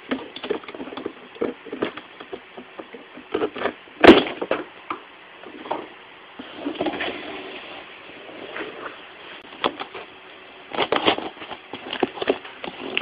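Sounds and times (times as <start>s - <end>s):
knife cutting cardboard box: 10.7s - 13.0s.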